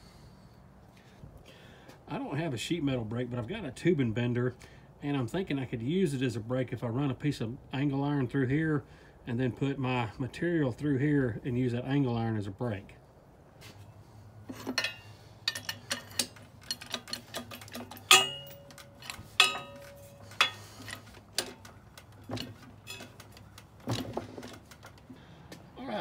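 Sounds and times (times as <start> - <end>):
steel plate clanking on metal frame: 14.5 - 24.9.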